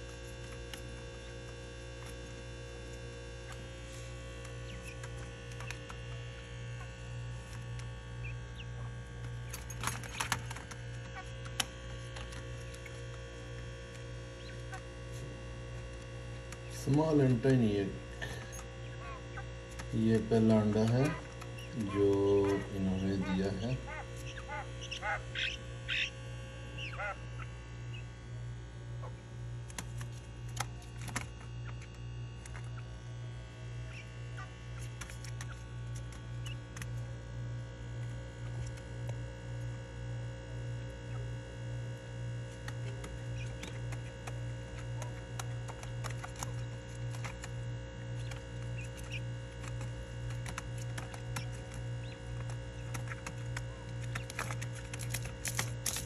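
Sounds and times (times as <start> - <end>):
steady low hum: 0.0 - 56.0
quail chirping: 3.3 - 7.0, 8.1 - 11.5, 12.1 - 13.2, 14.0 - 15.3, 18.3 - 28.1, 33.8 - 37.0, 42.8 - 55.3.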